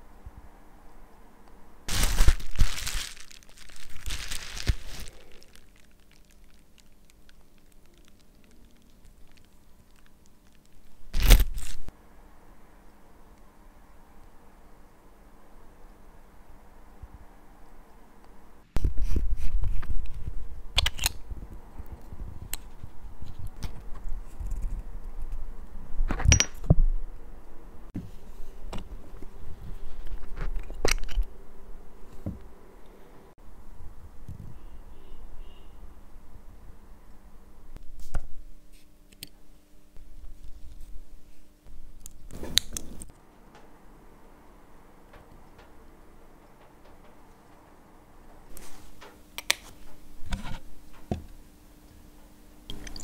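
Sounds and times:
thin plastic crinkling: 0:01.9 - 0:11.9.

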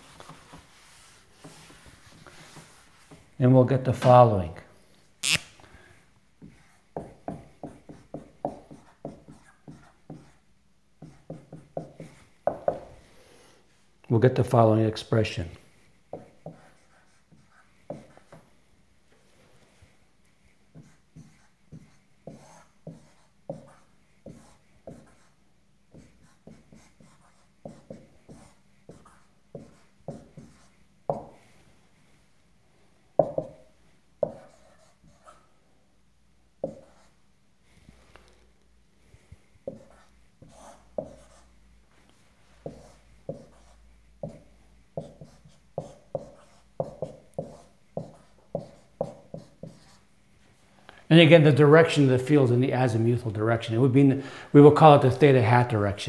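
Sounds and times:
marker writing on whiteboard: 0:00.0 - 0:03.4, 0:06.4 - 0:13.1, 0:15.8 - 0:18.6, 0:19.8 - 0:31.6, 0:33.2 - 0:35.5, 0:36.6 - 0:37.2, 0:39.6 - 0:50.1.

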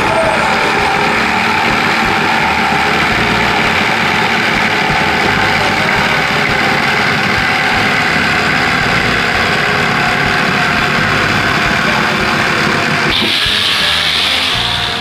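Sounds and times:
electric jigsaw cutting plywood: 0:00.0 - 0:15.0.

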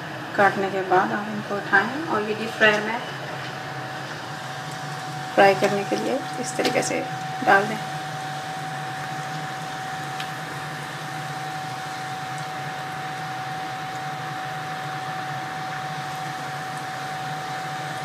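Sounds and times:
dough sizzling in deep fryer: 0:00.0 - 0:18.0
mechanical hum: 0:00.0 - 0:18.0.

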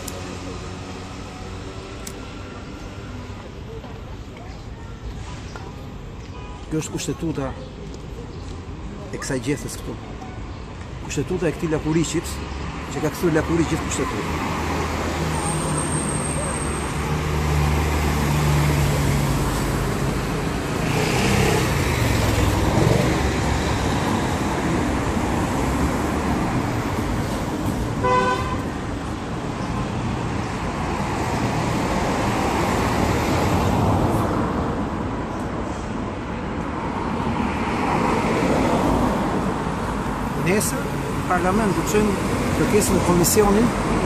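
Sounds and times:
road traffic passing: 0:00.0 - 0:44.0
car horn toot: 0:28.0 - 0:28.6.

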